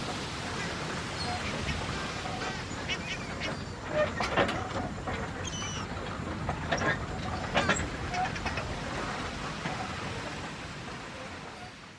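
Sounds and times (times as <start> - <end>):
sharp knocks and clanks: 3.4 - 9.8.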